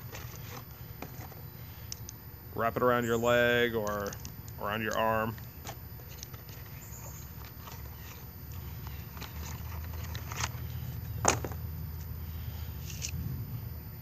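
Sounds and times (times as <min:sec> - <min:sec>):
knife and sheath clicks and scrapes: 0:12.8 - 0:13.2.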